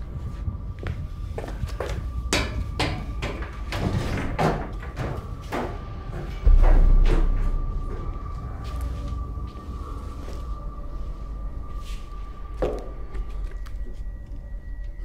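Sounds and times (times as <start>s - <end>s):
steady high hum: 5.8s - 15.0s
deep boom: 6.4s - 10.8s.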